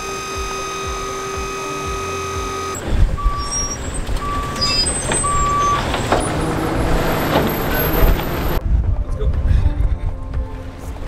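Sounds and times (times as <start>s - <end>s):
reversing alarm beeping: 0.0s - 8.1s
steady mechanical whine: 0.0s - 8.6s
low engine rumble: 0.0s - 11.0s.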